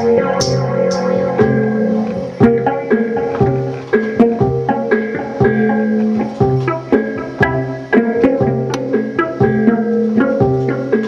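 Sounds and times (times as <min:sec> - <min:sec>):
sustained low bass note: 0:00.0 - 0:03.8
pedal steel guitar plucking: 0:00.0 - 0:11.0.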